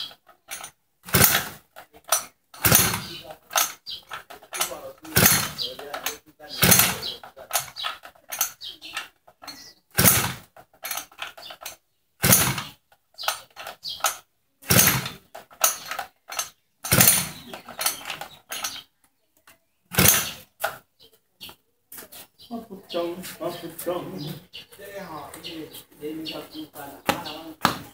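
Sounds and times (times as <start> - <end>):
hand tool scraping metal: 0.0 - 18.8.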